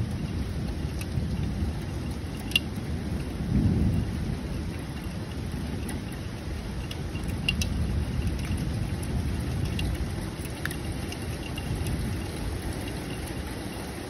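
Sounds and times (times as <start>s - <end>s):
sharp ticks: 0.0s - 13.9s
low continuous rumble: 0.0s - 14.0s
rain falling steadily: 0.0s - 14.0s.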